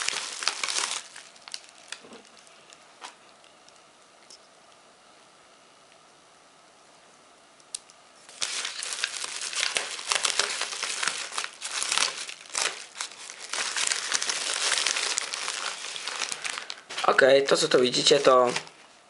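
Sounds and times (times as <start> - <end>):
bubble wrap and plastic crinkling: 0.0 - 3.9, 8.2 - 19.0.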